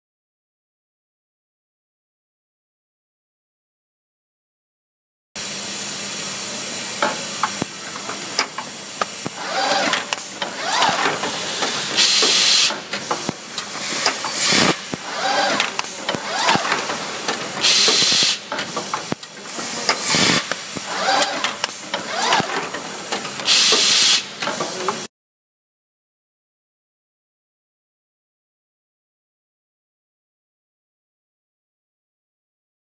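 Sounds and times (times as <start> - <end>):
pneumatic air exhaust hissing: 5.4 - 25.0
motors whirring: 7.4 - 24.0
machine parts clacking: 9.3 - 23.5.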